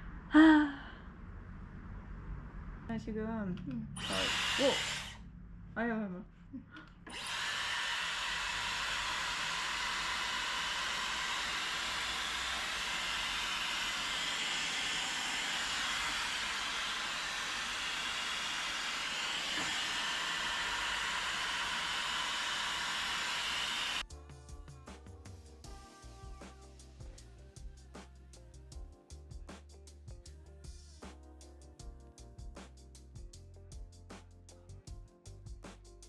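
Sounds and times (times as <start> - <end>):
hair dryer blowing: 3.9 - 5.2, 6.9 - 24.0.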